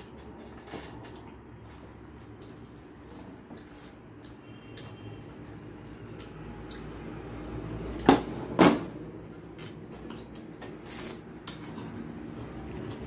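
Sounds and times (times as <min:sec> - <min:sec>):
loud slurps: 0:10.3 - 0:11.4.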